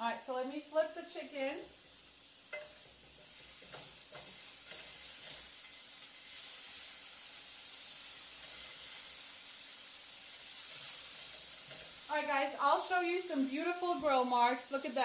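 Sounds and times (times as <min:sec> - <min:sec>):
chicken sizzling on grill pan: 0:00.0 - 0:15.0.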